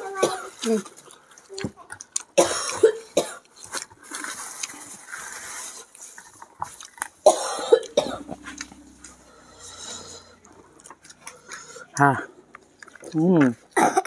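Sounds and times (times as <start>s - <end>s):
person coughing: 2.4s - 3.4s, 7.3s - 8.7s, 13.8s - 14.0s
hissing breaths: 8.2s - 12.5s.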